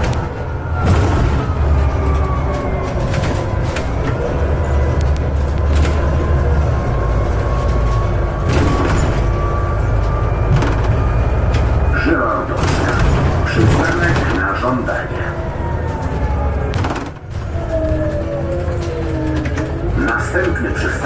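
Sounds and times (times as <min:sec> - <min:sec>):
bus body knocks and rattles: 0:00.0 - 0:04.2, 0:08.3 - 0:11.7, 0:12.5 - 0:14.8, 0:16.7 - 0:20.6
bus engine rumble with whine: 0:00.0 - 0:21.0.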